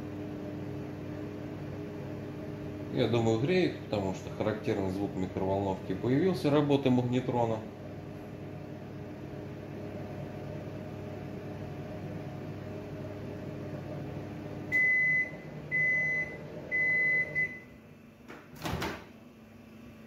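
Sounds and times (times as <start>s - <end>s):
microwave oven humming: 0.0s - 20.0s
microwave beeps: 14.6s - 17.8s.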